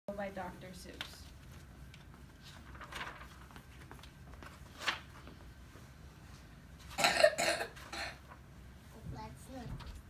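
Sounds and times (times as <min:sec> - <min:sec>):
book pages turning: 0:01.0 - 0:05.4.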